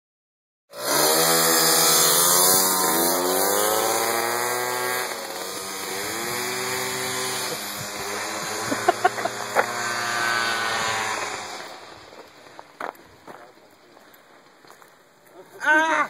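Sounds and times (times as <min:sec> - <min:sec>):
two-stroke mopeds revving: 0:00.7 - 0:12.8.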